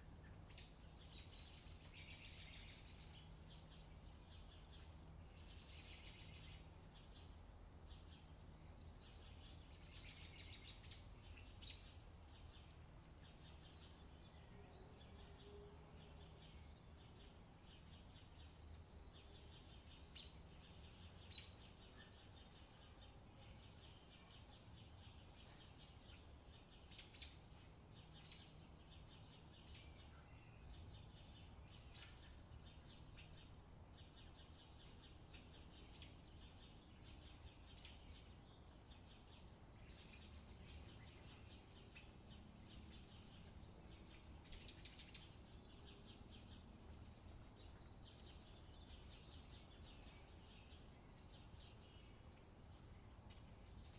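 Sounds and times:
birds chirping and trilling: 16.2s - 53.9s.

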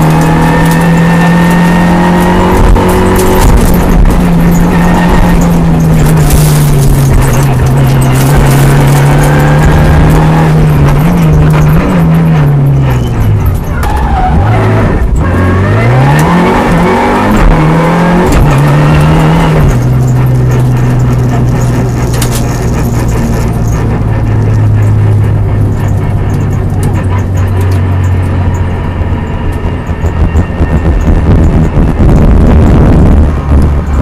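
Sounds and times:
rally car engine revving: 0.0s - 34.0s.

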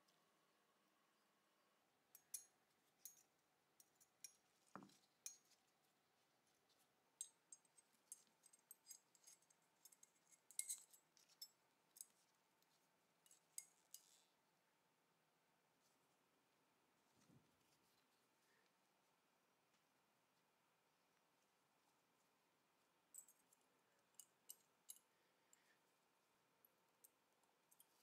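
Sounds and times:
small metal parts clicking: 7.5s - 11.5s.

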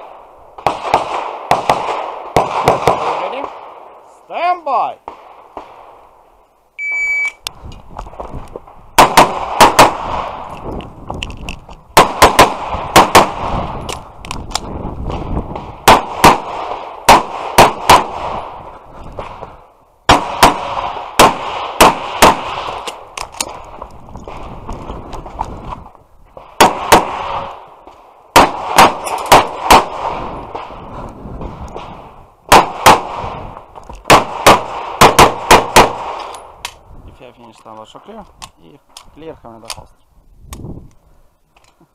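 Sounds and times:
shot timer beep: 6.8s - 7.4s
handgun shots: 28.4s - 29.9s.

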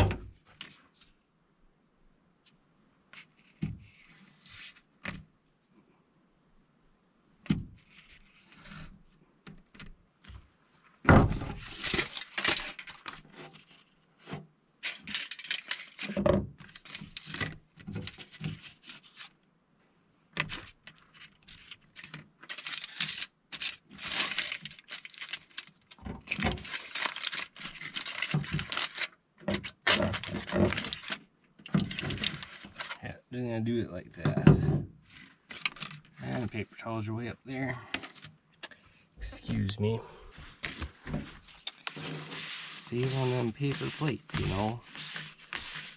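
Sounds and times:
aluminium foil crinkling: 11.6s - 13.8s, 14.8s - 19.3s, 20.9s - 33.0s, 35.1s - 36.3s, 41.4s - 45.9s.

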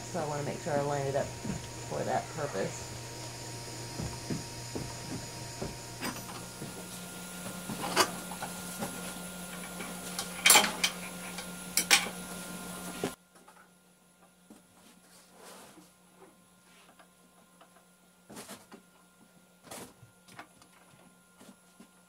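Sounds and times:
steady low hum: 0.0s - 13.2s.

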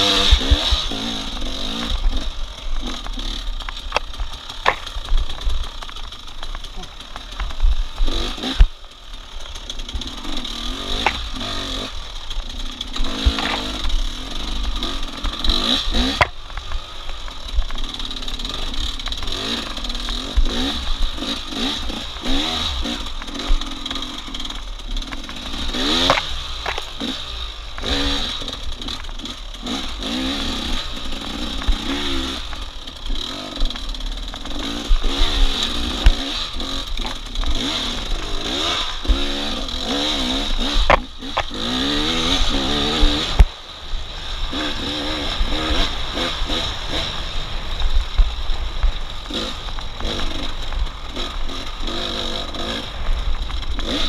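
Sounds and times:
racing engine revving: 0.0s - 3.5s, 12.9s - 16.4s.

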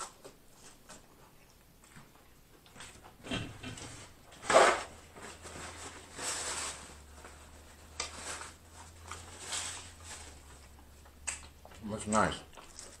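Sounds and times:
paper napkin rustling: 4.0s - 10.7s.

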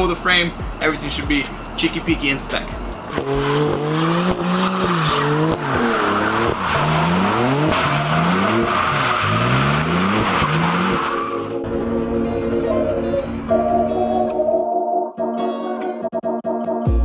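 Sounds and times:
car engine revving hard: 2.9s - 11.6s.

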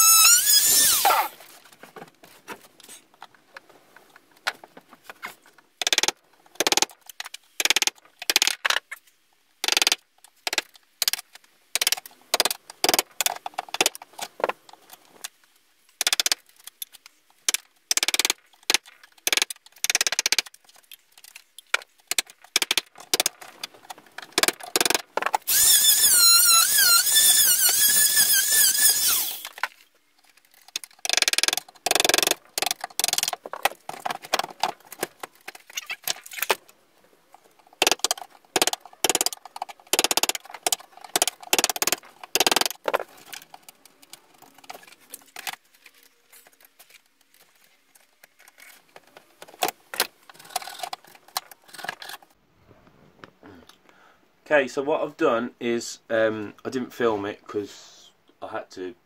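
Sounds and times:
oscillating multi-tool buzzing: 0.0s - 1.3s, 25.5s - 29.5s.

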